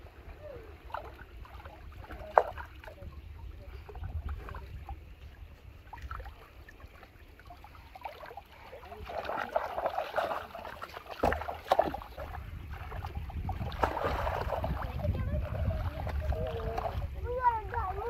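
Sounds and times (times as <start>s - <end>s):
wind rumbling on microphone: 0.0s - 8.0s, 8.8s - 18.0s
hands splashing in muddy water: 5.9s - 17.2s.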